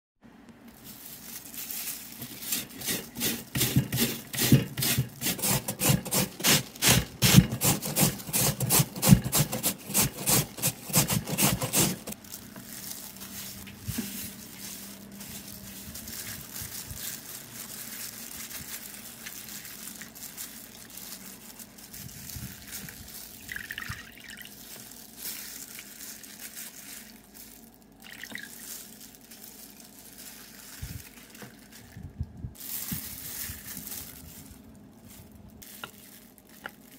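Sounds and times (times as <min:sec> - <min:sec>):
potato grated on metal grater: 0:02.1 - 0:12.2
water sloshing in a bowl: 0:23.4 - 0:24.6.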